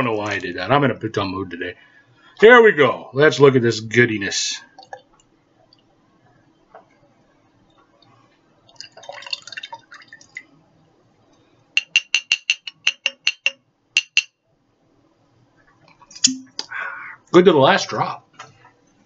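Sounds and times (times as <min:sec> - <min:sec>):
sauce dribbling into glass jar: 0:08.7 - 0:10.4
bottle clinking against jar rim: 0:11.8 - 0:14.4.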